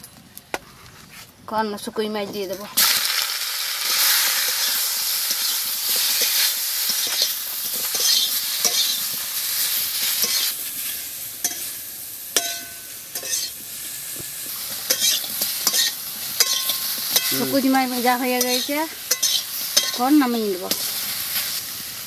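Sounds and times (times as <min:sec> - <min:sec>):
fish sizzling in oil: 0:02.4 - 0:22.0
metal spatula scraping a wok: 0:03.9 - 0:11.8, 0:12.4 - 0:21.6.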